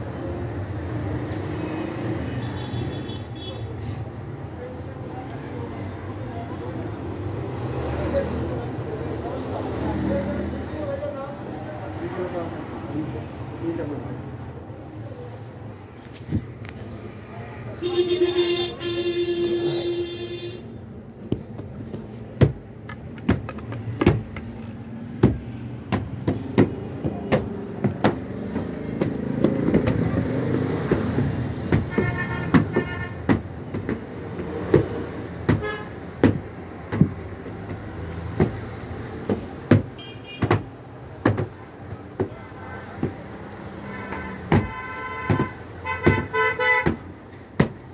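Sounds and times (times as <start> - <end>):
stick beating a quilt: 21.3 - 24.6, 25.2 - 34.1, 34.7 - 38.6, 39.2 - 42.4, 44.4 - 47.9.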